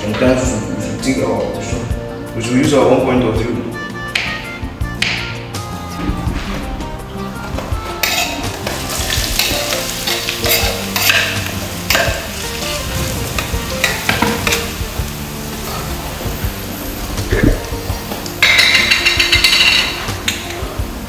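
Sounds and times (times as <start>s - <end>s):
food sizzling in hot oil: 7.5s - 21.0s.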